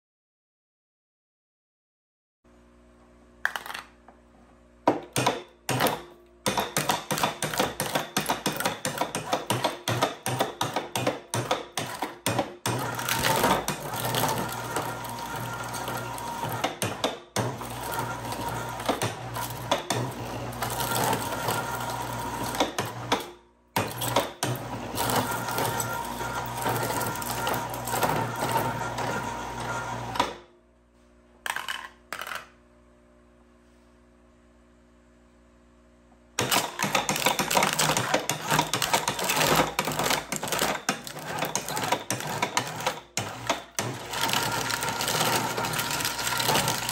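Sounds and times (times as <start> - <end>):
shredder crunching metal cans: 4.9 - 30.4, 36.4 - 46.9
motor hum: 12.3 - 33.9, 34.8 - 46.9.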